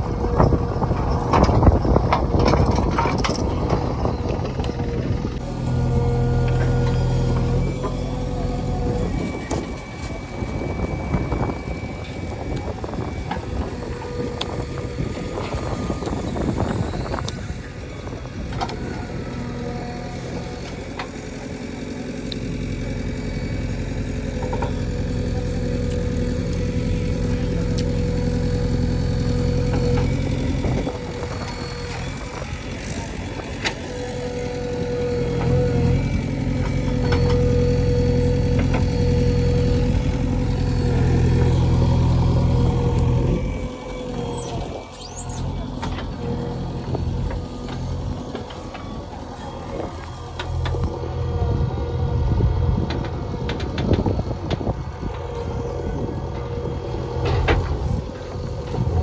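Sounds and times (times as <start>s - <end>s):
diesel engine working hard: 0.0s - 59.0s
hydraulic whine: 0.0s - 59.0s.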